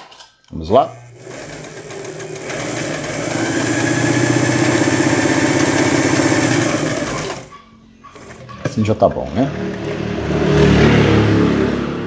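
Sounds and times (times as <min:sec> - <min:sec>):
sewing machine stitching: 0:01.0 - 0:07.5, 0:08.1 - 0:08.8.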